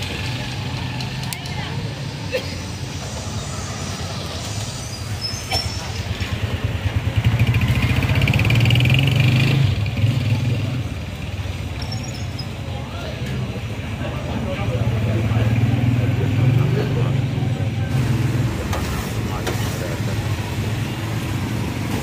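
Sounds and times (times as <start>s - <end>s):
street background noise: 0.0s - 22.0s
vehicle engine passing by: 2.9s - 11.1s.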